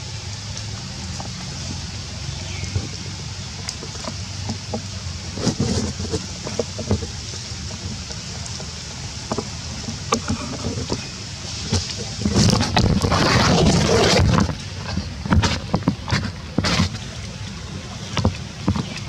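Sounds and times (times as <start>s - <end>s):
light clicks and crackles: 2.6s - 19.0s
wind on microphone: 9.3s - 17.1s.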